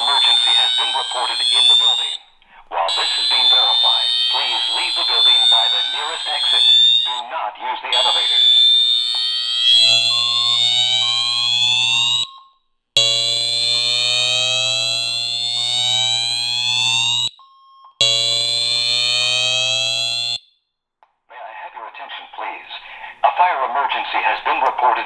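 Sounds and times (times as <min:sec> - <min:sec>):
fire alarm whoop tone: 0:00.0 - 0:02.3, 0:02.9 - 0:07.2, 0:07.9 - 0:20.6
short beeps: 0:02.9 - 0:07.2, 0:09.7 - 0:12.6, 0:17.3 - 0:18.2.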